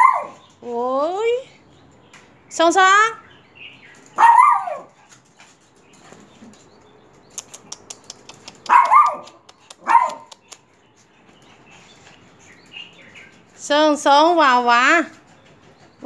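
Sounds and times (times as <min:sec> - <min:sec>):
small dogs barking: 0:00.0 - 0:00.5, 0:04.1 - 0:05.1, 0:08.3 - 0:10.5.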